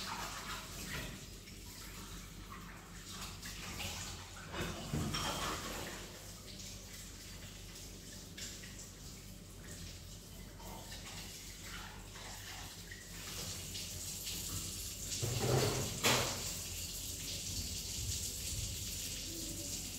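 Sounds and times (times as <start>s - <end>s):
tap water running into sink: 0.0s - 19.9s
dishes clattering: 4.5s - 6.0s, 15.2s - 16.4s.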